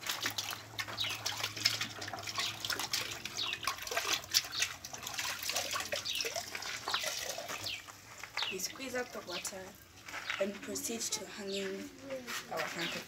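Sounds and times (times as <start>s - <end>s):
cloth splashing in bucket of water: 0.0s - 9.4s
water dripping: 0.0s - 10.4s.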